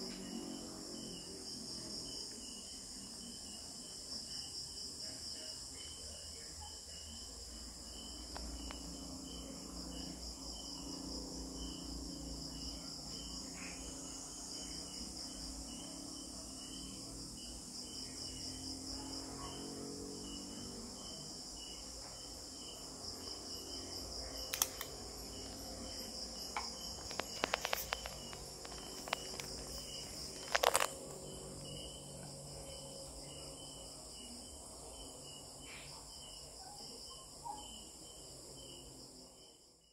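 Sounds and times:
insects chirping: 0.0s - 39.9s
sharp clicks and taps: 24.5s - 25.0s.

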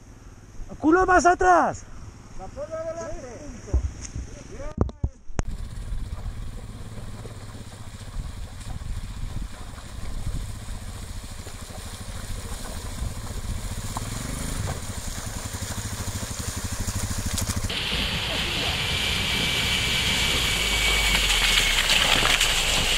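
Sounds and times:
motorcycle engine running: 5.4s - 22.9s
water splashing from wheels: 5.5s - 22.9s.

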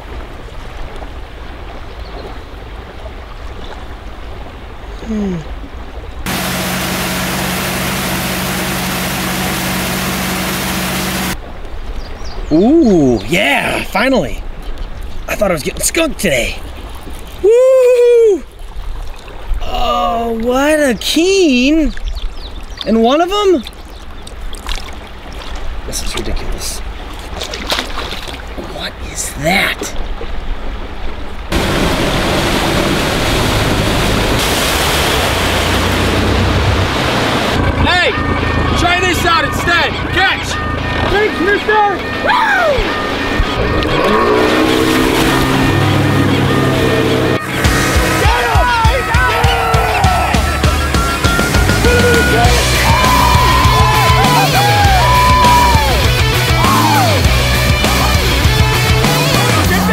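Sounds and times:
rushing water and wind: 0.0s - 59.9s
outboard motor running: 6.3s - 11.4s, 31.5s - 59.9s.

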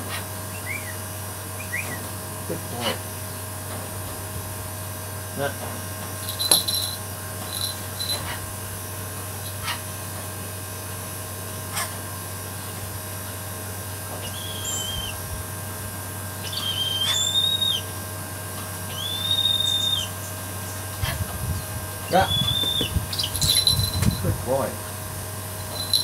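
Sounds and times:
bird whistling calls: 0.5s - 1.0s, 1.6s - 2.0s, 14.2s - 15.2s, 16.4s - 17.9s, 18.9s - 20.2s, 22.1s - 23.7s.

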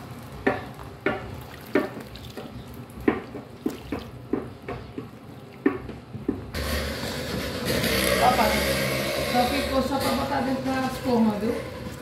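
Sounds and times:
spoon stirring wet batter: 0.1s - 6.5s.

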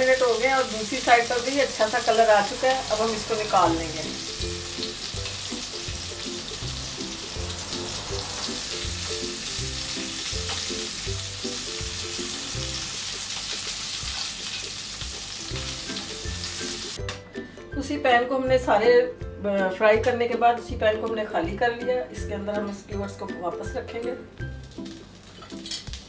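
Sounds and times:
meat sizzling in oil: 0.0s - 17.0s
music with low bass line: 3.7s - 12.8s.

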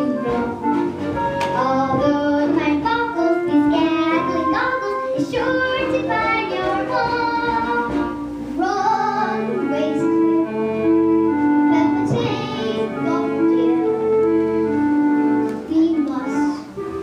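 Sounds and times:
instrumental accompaniment: 0.0s - 17.0s
children singing: 1.5s - 11.1s, 11.7s - 14.1s.

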